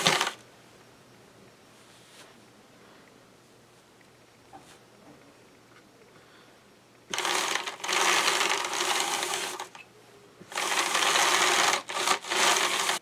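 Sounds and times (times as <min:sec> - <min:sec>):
hand-cranked drum carder whirring: 0:00.0 - 0:00.4, 0:07.1 - 0:09.8, 0:10.4 - 0:13.0.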